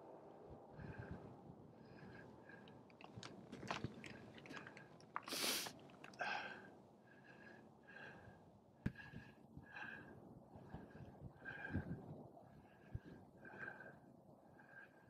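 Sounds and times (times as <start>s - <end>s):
heavy wheezy breathing: 0.8s - 10.2s
footsteps on rock and stones: 3.0s - 6.2s
loud hiss: 5.3s - 5.7s.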